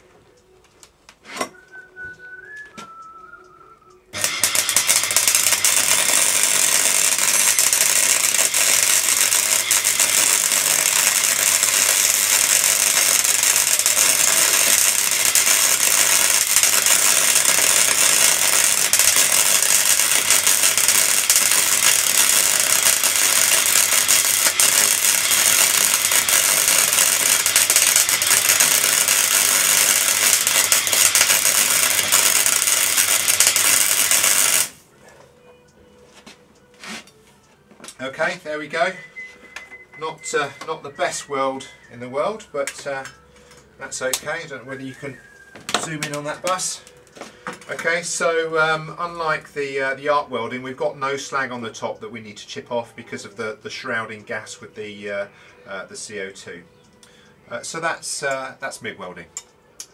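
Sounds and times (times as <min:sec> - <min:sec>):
welding arc crackling: 0:04.1 - 0:34.9.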